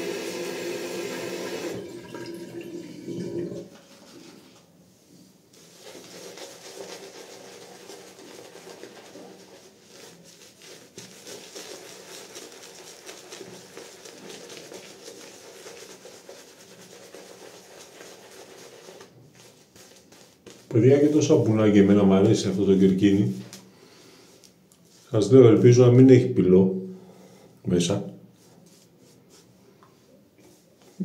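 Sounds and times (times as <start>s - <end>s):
shaving brush swishing through lather: 3.9s - 21.6s.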